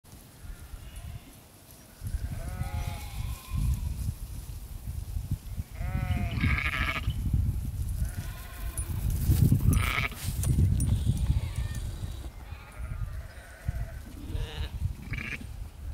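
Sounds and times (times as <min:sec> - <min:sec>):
sheep bleating: 0:02.2 - 0:03.7, 0:05.8 - 0:07.1, 0:12.4 - 0:15.4.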